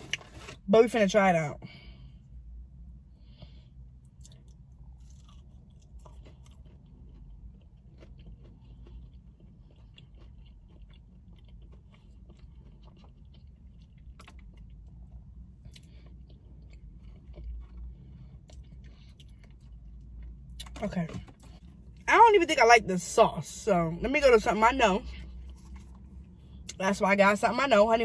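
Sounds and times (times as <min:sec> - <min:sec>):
chewing crispy nugget: 0:04.0 - 0:22.1, 0:24.3 - 0:26.8.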